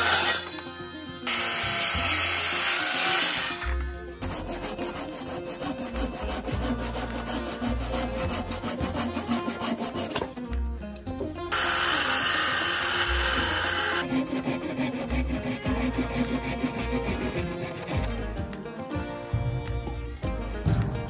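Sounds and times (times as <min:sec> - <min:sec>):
handsaw rasping through wood: 0:00.0 - 0:00.4, 0:01.3 - 0:10.5, 0:11.5 - 0:18.5
circular saw cutting wood: 0:00.0 - 0:10.6, 0:11.5 - 0:18.6.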